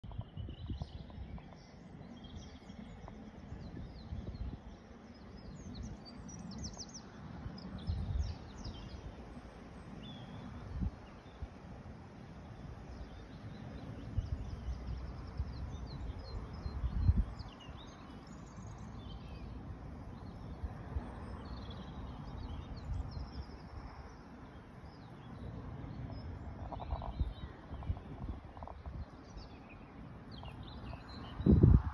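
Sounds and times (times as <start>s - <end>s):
small birds chirping: 0.0s - 11.5s, 12.4s - 31.9s
wind buffeting microphone: 0.0s - 31.9s.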